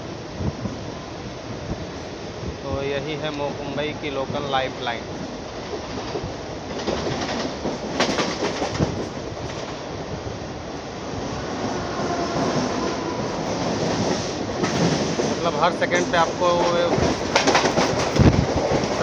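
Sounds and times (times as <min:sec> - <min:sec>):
train wheels rumbling on rails: 0:00.0 - 0:19.0
clicking clatter: 0:16.6 - 0:19.0.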